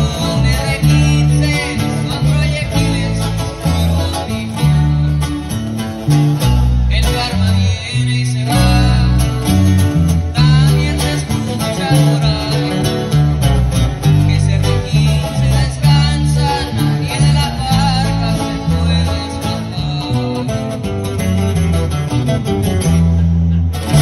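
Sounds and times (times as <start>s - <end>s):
man singing into a microphone: 0.0s - 21.6s
electric bass: 0.0s - 24.0s
guitar playing: 0.0s - 24.0s.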